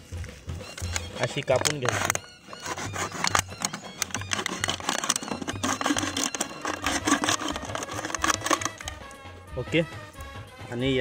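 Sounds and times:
knife sawing plastic bottle: 0:01.5 - 0:09.0.

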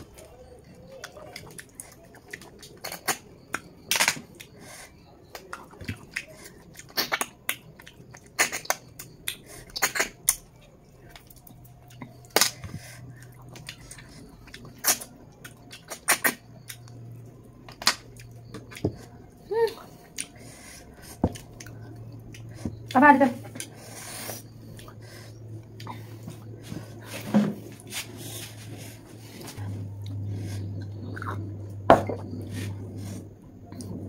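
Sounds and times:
faint low hum: 0:00.0 - 0:34.0
slurps and clicks eating snails: 0:00.1 - 0:26.4.

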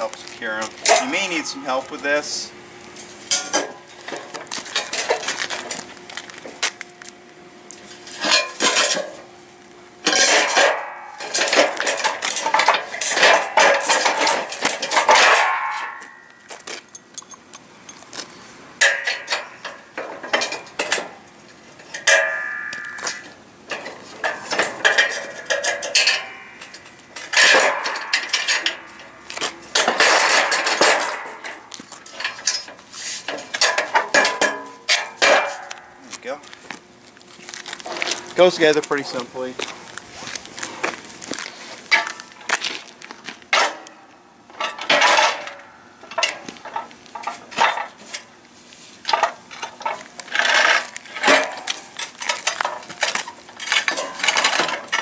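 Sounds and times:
aluminium frame clanking: 0:00.7 - 0:02.0, 0:03.3 - 0:05.7, 0:10.0 - 0:18.0, 0:18.8 - 0:21.2, 0:21.8 - 0:36.0, 0:43.5 - 0:48.3, 0:49.1 - 0:55.0.

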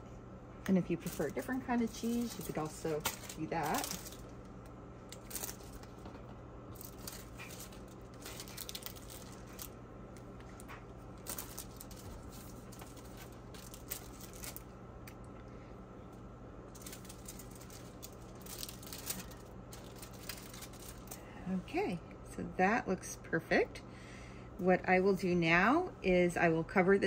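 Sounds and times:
steady low hum: 0:00.0 - 0:27.0
cheese slices tapping and rustling: 0:00.7 - 0:15.4, 0:16.7 - 0:21.3.

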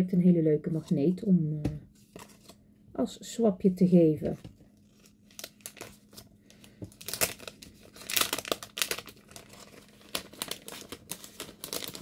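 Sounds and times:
plastic bag crinkling: 0:04.8 - 0:12.0.

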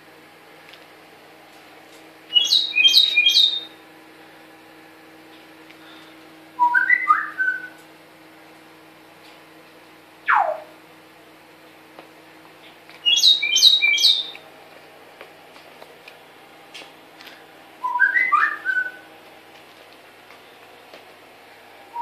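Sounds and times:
parrot whistling: 0:02.3 - 0:03.7, 0:06.6 - 0:07.8, 0:10.3 - 0:10.7, 0:13.0 - 0:14.4, 0:17.8 - 0:19.0.

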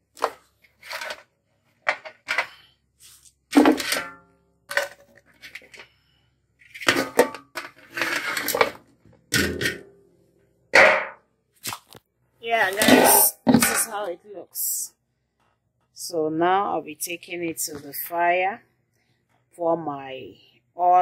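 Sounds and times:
metal tray scraping pot rim: 0:06.7 - 0:08.8, 0:12.6 - 0:14.0.

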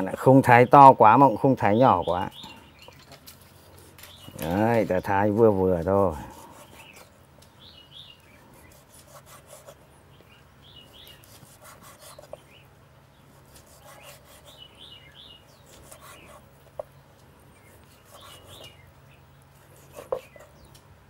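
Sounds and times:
small birds chirping: 0:00.0 - 0:21.0
knife slicing meat: 0:05.8 - 0:07.1, 0:11.2 - 0:12.4, 0:13.3 - 0:14.7, 0:15.7 - 0:16.5, 0:17.8 - 0:18.8, 0:19.6 - 0:20.6.

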